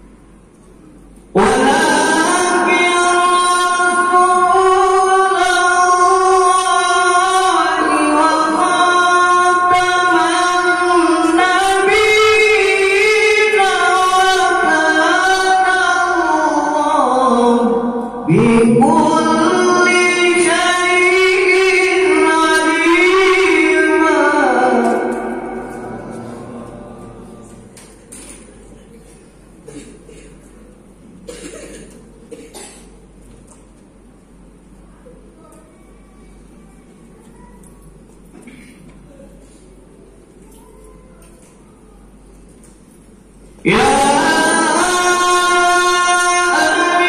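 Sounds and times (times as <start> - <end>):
man singing through loudspeaker: 1.3 - 28.5, 43.5 - 47.0.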